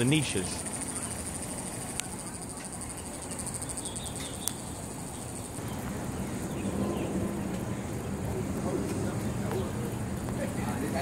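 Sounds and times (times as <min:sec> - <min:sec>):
insects chirring: 0:00.0 - 0:08.0.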